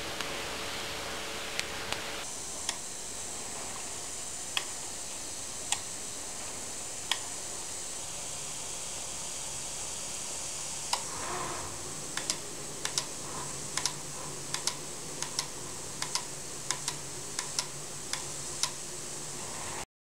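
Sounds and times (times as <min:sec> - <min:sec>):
airbrush hiss: 0:00.7 - 0:19.8
sharp mechanical clicks: 0:07.1 - 0:07.3, 0:12.1 - 0:18.8.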